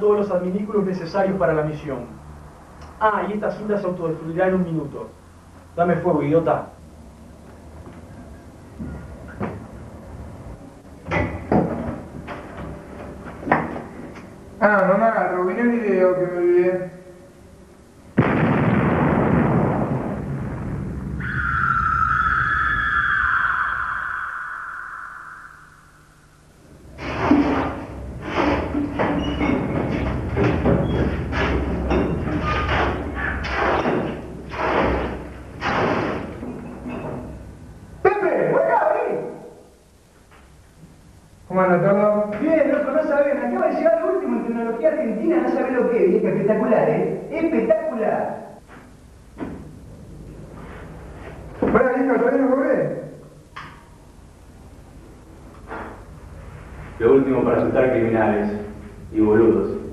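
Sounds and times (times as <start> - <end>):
low background hum: 0.0 - 59.9
knocks and bumps: 27.0 - 37.3.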